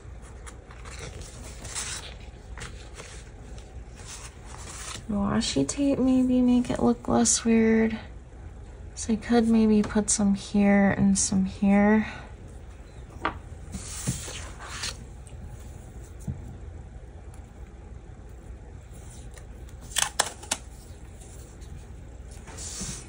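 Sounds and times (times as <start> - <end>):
paper rustling: 0.2 - 5.1, 13.7 - 16.3, 18.8 - 23.0.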